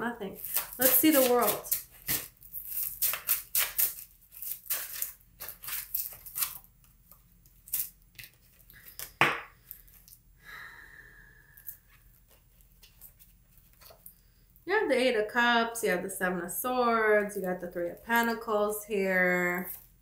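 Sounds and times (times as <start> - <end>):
cards shuffling: 0.4 - 6.7.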